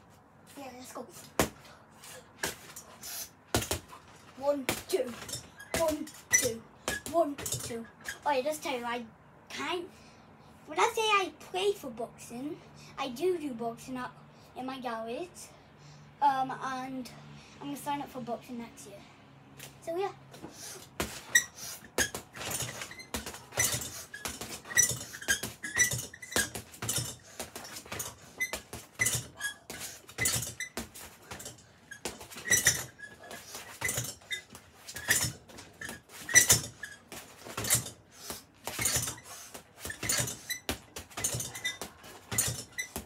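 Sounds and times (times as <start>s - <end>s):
gloves punching heavy bag: 1.3s - 1.6s, 2.4s - 2.8s, 3.5s - 6.2s, 20.9s - 43.0s.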